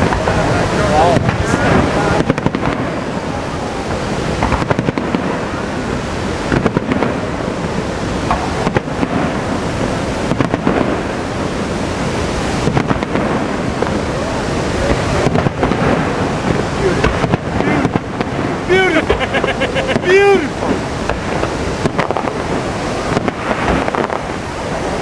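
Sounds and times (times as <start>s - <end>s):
steady rushing background noise: 0.0s - 25.0s
firework shells bursting: 4.4s - 5.6s, 14.9s - 24.4s.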